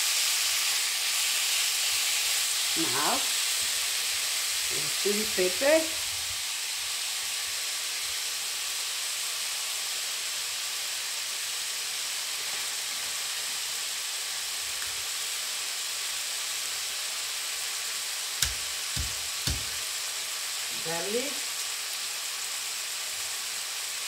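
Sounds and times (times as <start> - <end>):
meat sizzling in oil: 0.0 - 24.0
sharp knock: 18.4 - 19.8.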